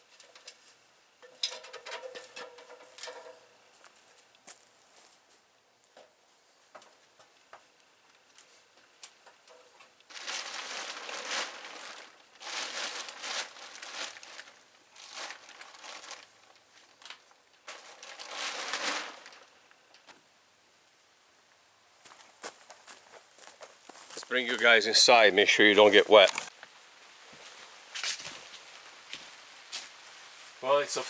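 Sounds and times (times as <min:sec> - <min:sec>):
plastic tarp crinkling: 0:10.1 - 0:19.6.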